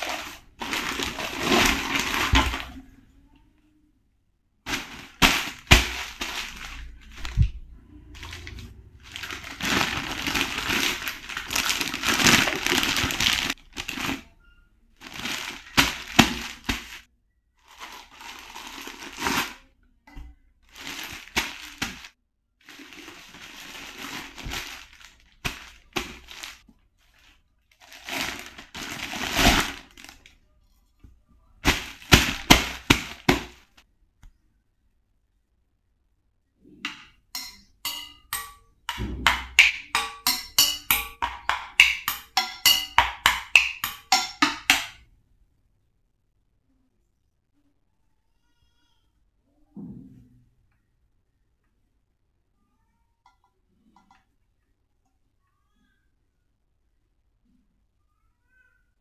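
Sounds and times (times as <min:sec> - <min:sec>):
packaging rustling and crinkling: 0:00.0 - 0:02.8, 0:04.7 - 0:14.3, 0:15.0 - 0:19.6, 0:20.7 - 0:30.4, 0:31.6 - 0:33.8
plastic parts clicking and knocking: 0:36.9 - 0:45.0.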